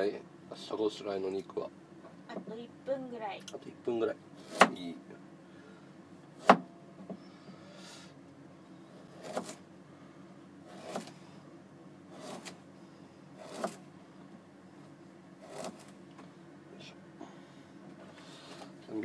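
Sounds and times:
faint steady hum: 0:00.0 - 0:19.0
knife slicing root on cutting board: 0:04.4 - 0:04.9, 0:09.1 - 0:09.6, 0:10.7 - 0:11.2, 0:12.1 - 0:12.6, 0:13.4 - 0:13.8, 0:15.4 - 0:15.9.

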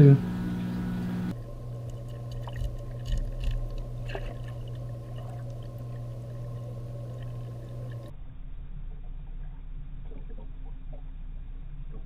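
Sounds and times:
faint water bubbling: 0:00.0 - 0:12.0
steady low underwater hum: 0:00.0 - 0:12.0
small underwater clicks: 0:01.8 - 0:08.1.

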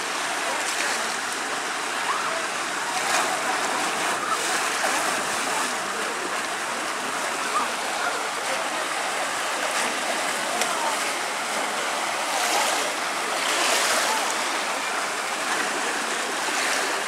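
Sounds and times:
faint voices: 0:00.0 - 0:17.0
water rushing out of slide: 0:00.0 - 0:17.0
splashing into pool: 0:02.0 - 0:06.4.

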